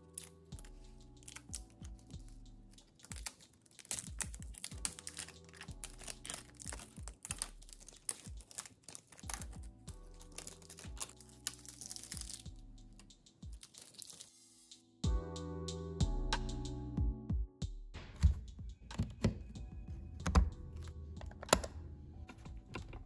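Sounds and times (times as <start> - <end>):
plastic film crinkling: 0.0 - 12.6, 13.4 - 14.4
soft background music: 0.0 - 23.0.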